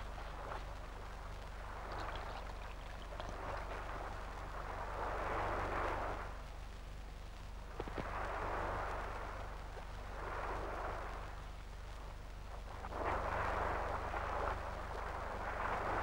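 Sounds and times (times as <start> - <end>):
surf washing onto beach: 0.0 - 6.4, 7.8 - 11.5, 12.8 - 16.0.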